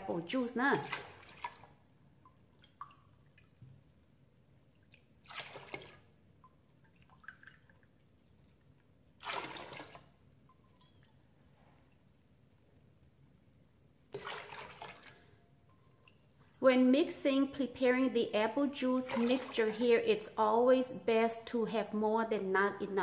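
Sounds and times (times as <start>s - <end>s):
water splashing into metal bowl: 0.7s - 3.6s, 4.7s - 8.0s, 9.2s - 11.2s, 14.1s - 16.2s, 19.0s - 19.8s.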